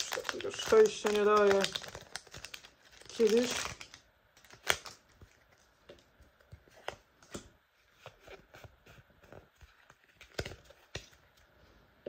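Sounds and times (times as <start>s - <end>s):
trading cards clicking and rustling: 0.0s - 5.7s, 8.1s - 11.2s.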